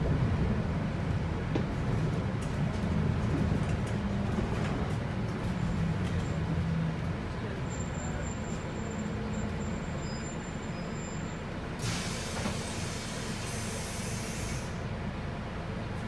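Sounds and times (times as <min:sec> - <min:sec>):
bus diesel engine idling: 0:00.0 - 0:16.0
compressed air hiss: 0:11.8 - 0:14.8.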